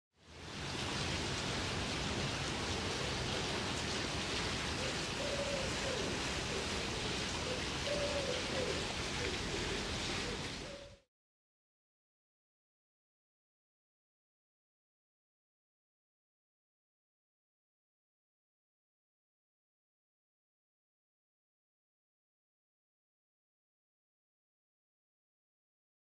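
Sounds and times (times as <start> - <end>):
outdoor background hiss: 0.2 - 11.1
pigeon cooing: 4.4 - 11.0.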